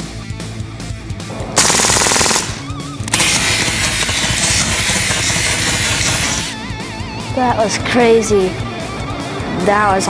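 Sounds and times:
bb pistol firing bursts: 0:01.6 - 0:06.6.

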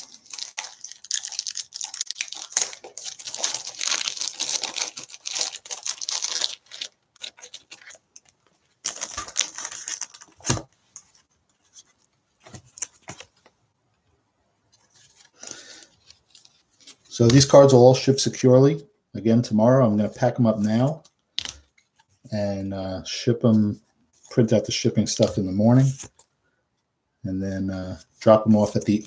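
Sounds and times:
plastic and paper rustling: 0:00.0 - 0:13.6, 0:14.7 - 0:17.6.

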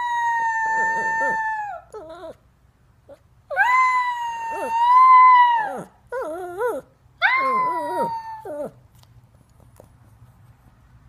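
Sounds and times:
small dog howling: 0:00.0 - 0:02.4, 0:03.5 - 0:08.8.

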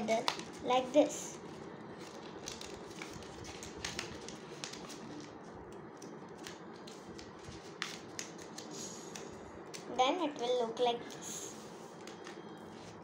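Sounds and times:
paper rustling and crinkling: 0:01.4 - 0:09.8.

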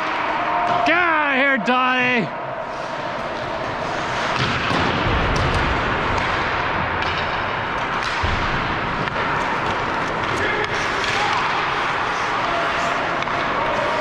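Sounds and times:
hockey sticks and puck clacking: 0:00.0 - 0:01.2, 0:02.7 - 0:14.0
steady rink hiss: 0:02.0 - 0:04.8.

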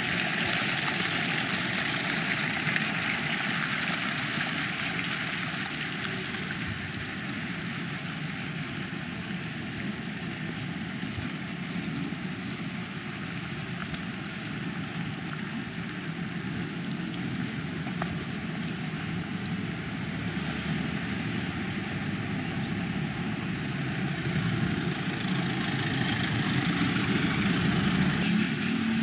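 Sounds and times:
traffic rushing with low rumble: 0:00.0 - 0:29.0
vehicle passing: 0:24.0 - 0:29.0.

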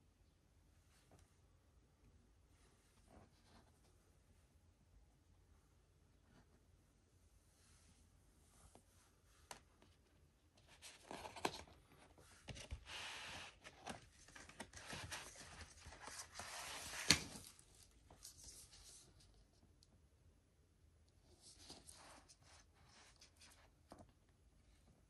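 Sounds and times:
paper sleeves rustling: 0:10.7 - 0:19.5.

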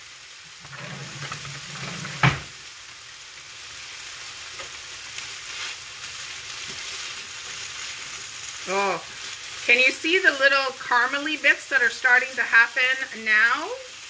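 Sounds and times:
hash sizzling in a pan: 0:00.0 - 0:14.0
spatula scraping a pan: 0:00.5 - 0:02.6, 0:04.5 - 0:08.5.

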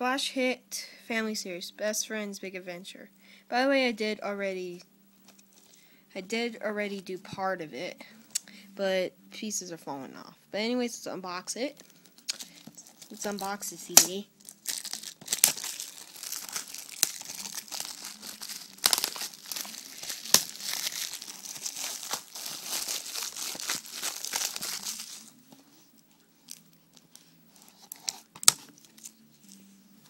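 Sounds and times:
plastic wrap crinkling and tearing: 0:11.8 - 0:29.6.

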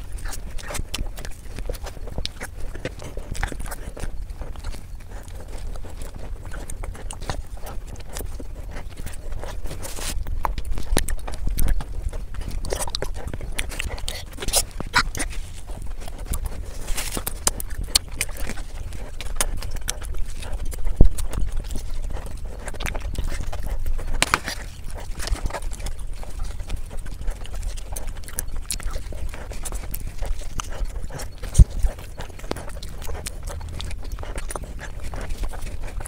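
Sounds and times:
wet chewing and slurping: 0:00.0 - 0:36.0.

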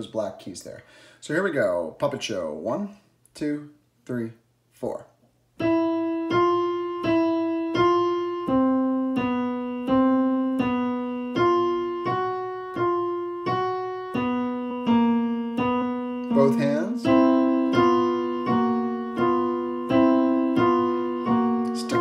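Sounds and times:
digital piano simple melody: 0:05.6 - 0:22.0.

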